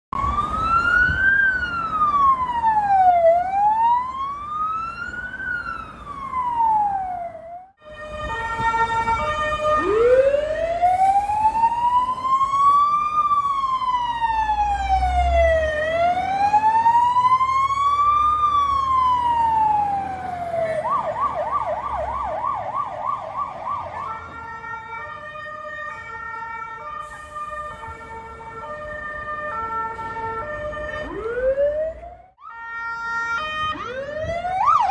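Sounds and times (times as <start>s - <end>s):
emergency vehicle sirens: 0.1s - 34.9s
heavy truck engine rumbling: 0.2s - 22.6s.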